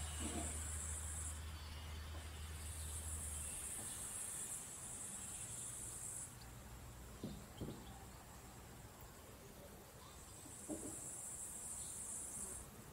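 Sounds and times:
high-pitched insect trill: 0:02.6 - 0:06.3, 0:10.5 - 0:12.6.

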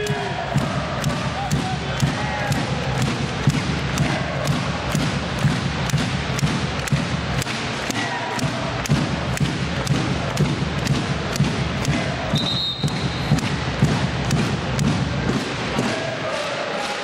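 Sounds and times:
arena crowd noise: 0:00.0 - 0:17.0
rhythmic sharp thuds: 0:00.0 - 0:17.0
referee's whistle: 0:12.3 - 0:13.4.

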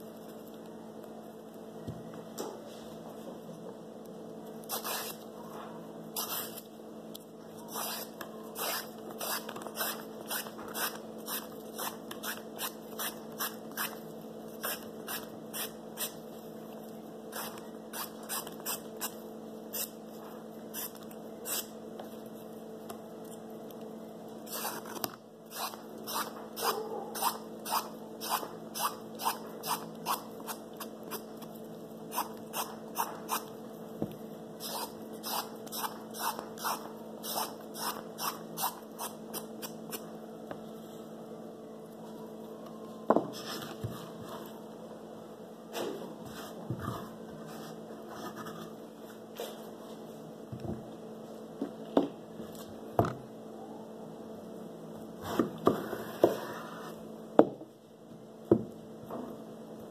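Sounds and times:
steady background hum: 0:00.0 - 0:59.9
peeler scraping cucumber skin: 0:04.6 - 0:05.2, 0:06.2 - 0:06.7, 0:07.7 - 0:14.0, 0:14.6 - 0:16.2, 0:17.3 - 0:20.0, 0:20.7 - 0:21.7, 0:24.5 - 0:31.3, 0:32.1 - 0:33.5, 0:34.6 - 0:40.0.

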